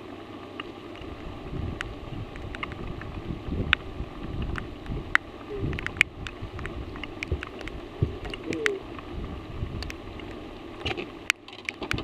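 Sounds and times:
low rumble of wind and water: 0.0s - 12.0s
raindrops ticking on boat: 1.8s - 9.1s.

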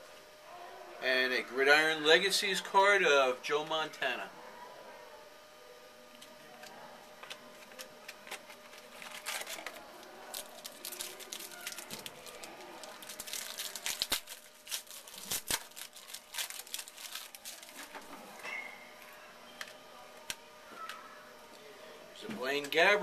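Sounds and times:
foil wrapper crinkling and tearing: 7.6s - 18.4s.

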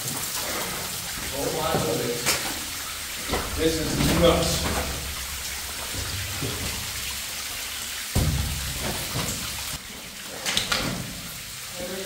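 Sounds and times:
water splashing on wood and rock: 0.0s - 12.0s
sharp knocks: 3.2s - 7.4s, 8.1s - 9.4s
loud dull thump: 8.1s - 9.3s.

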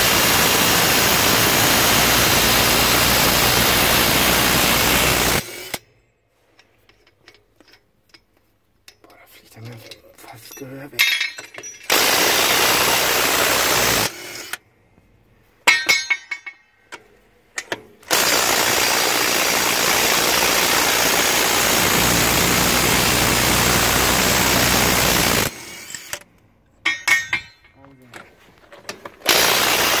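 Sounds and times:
metallic clinks: 6.0s - 11.9s
impact wrench hammering: 15.7s - 16.7s, 26.8s - 27.8s.

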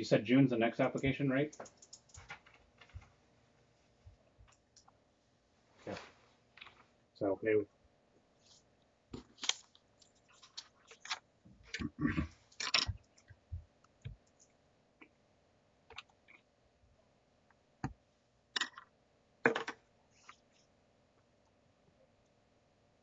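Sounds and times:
clicks and knocks on table: 18.6s - 19.8s.

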